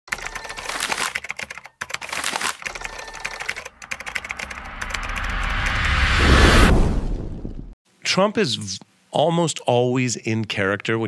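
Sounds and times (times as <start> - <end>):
keyboard typing clicks: 2.7 - 5.7
rising whoosh: 3.7 - 7.8.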